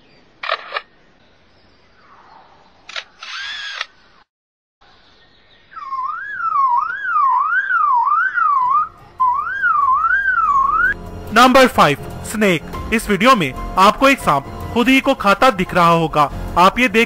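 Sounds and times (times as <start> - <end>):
bird mimicking camera shutter clicks: 0.4 - 0.9, 2.9 - 4.0
bird mimicking motor whirr: 2.9 - 4.2, 5.7 - 10.8
bird mimicking car alarm: 5.6 - 11.0.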